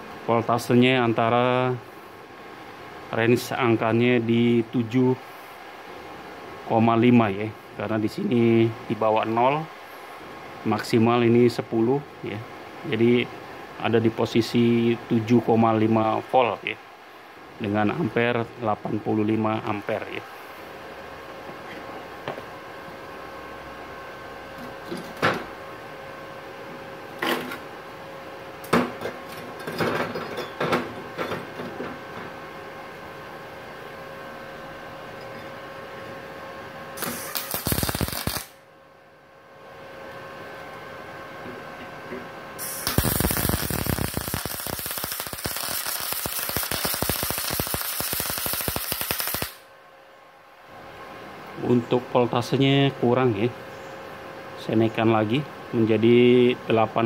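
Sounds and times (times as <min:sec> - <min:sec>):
welder machine whine: 0:19.2 - 0:38.8, 0:39.6 - 0:49.8
welding arc sputtering: 0:37.0 - 0:38.6, 0:42.6 - 0:49.7.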